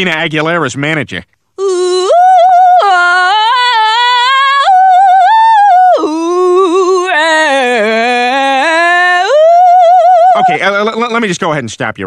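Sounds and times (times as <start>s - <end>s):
woman singing pop vocal runs: 1.6s - 10.6s.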